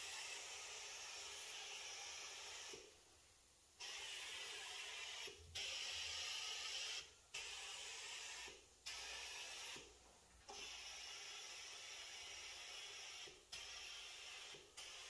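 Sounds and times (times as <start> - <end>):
pressurised spray hissing: 0.0 - 3.0, 3.8 - 9.8.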